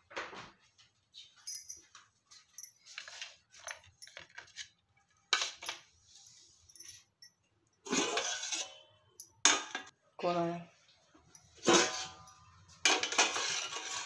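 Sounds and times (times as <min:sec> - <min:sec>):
metal kitchenware clinking: 0:06.7 - 0:09.9, 0:11.3 - 0:14.0
metal plate scraping and clattering: 0:07.9 - 0:08.8, 0:11.6 - 0:14.0.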